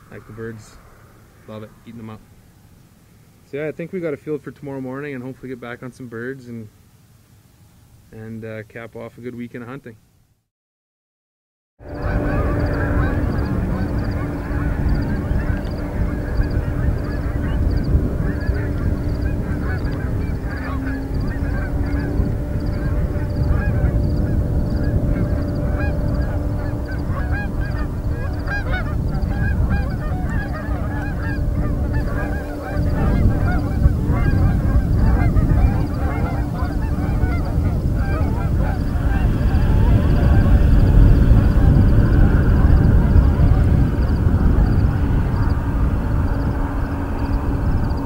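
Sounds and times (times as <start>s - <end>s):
steady low rumble: 0.0s - 4.2s, 11.8s - 48.0s
geese honking: 11.8s - 48.0s.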